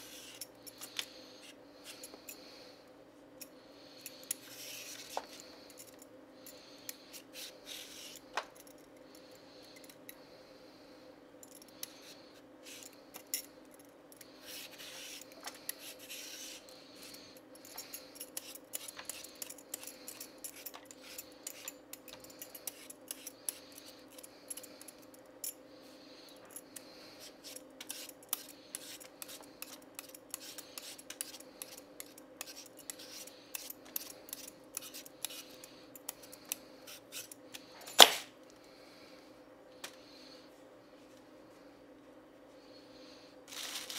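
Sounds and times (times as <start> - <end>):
faint steady hum: 0.0 - 43.9
vegetable peeler scraping carrot: 14.4 - 17.2, 27.2 - 35.6.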